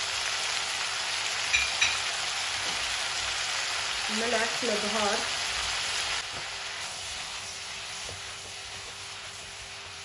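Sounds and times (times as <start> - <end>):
vegetables sizzling in oil: 0.0 - 10.0
spatula stirring in pot: 6.3 - 10.0.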